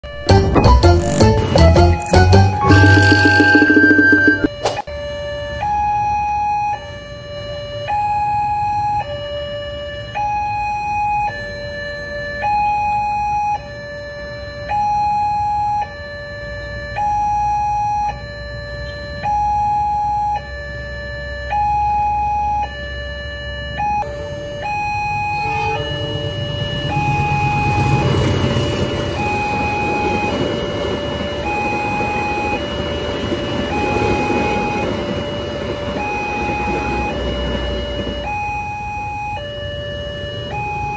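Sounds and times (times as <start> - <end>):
level-crossing two-tone alarm: 0.0 - 40.9
passing train rumble: 24.0 - 40.9.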